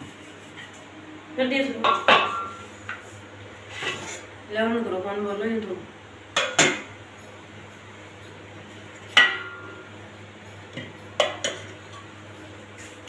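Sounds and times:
pot lids clanking on pans: 1.8s - 2.6s, 6.3s - 7.0s, 9.1s - 9.9s, 10.8s - 12.2s.

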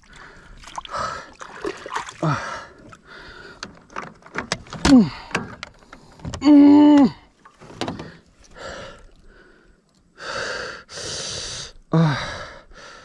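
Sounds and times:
water splashing: 0.0s - 3.5s
knocks and clatter in a boat: 2.8s - 8.2s
man groaning: 6.4s - 7.3s
man grunting: 6.4s - 7.3s.

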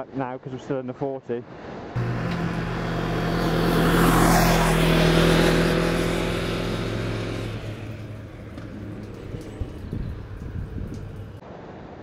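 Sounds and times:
motorcycle engine running: 2.0s - 11.4s
wind and road noise: 2.0s - 11.4s.

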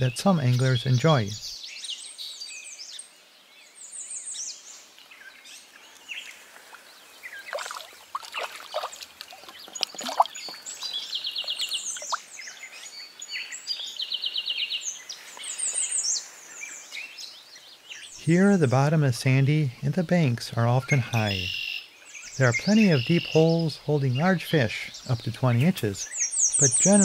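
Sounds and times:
songbirds singing and chirping: 0.0s - 27.0s
splashes in water: 7.3s - 12.3s
bird rapid trill: 7.4s - 12.6s.

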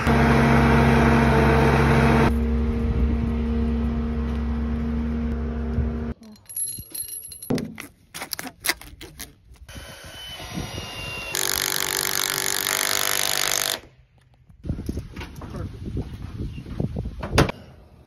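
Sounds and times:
metal screws clinking in hand: 6.2s - 8.0s.

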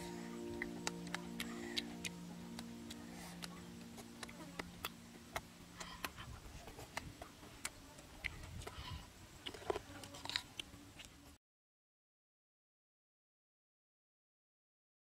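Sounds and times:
faint background music: 0.0s - 11.4s
mouth clicks and smacks eating: 0.5s - 11.2s
crisp cucumber bite: 9.4s - 11.2s.

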